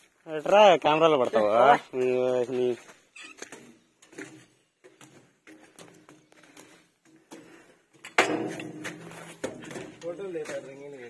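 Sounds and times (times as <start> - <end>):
footsteps on metal stairs: 0.5 - 11.0
ringing metal clang: 8.1 - 9.0.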